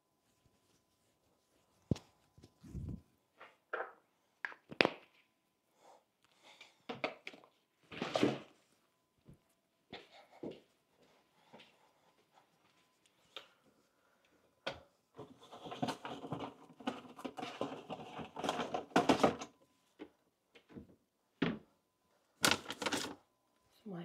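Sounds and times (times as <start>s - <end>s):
clicks and knocks of objects: 14.7s - 20.8s
rustling and clatter: 15.1s - 20.9s.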